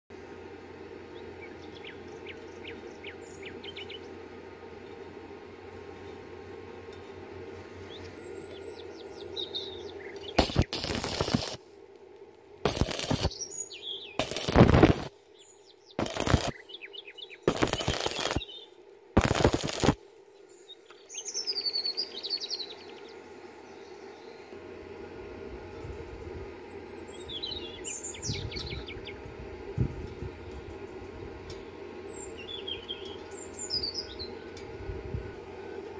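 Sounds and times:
birds chirping: 0:01.1 - 0:04.3, 0:07.8 - 0:11.6, 0:12.7 - 0:24.5, 0:26.6 - 0:29.4, 0:32.0 - 0:34.6
welding arc crackling: 0:10.2 - 0:11.6, 0:12.5 - 0:13.4, 0:14.2 - 0:15.2, 0:16.0 - 0:16.6, 0:17.5 - 0:18.5, 0:19.2 - 0:20.0.

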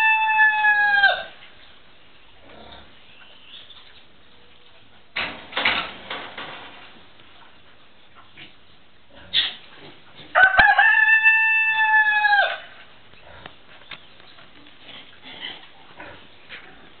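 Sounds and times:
rooster crowing: 0:00.0 - 0:01.4, 0:10.3 - 0:12.8.

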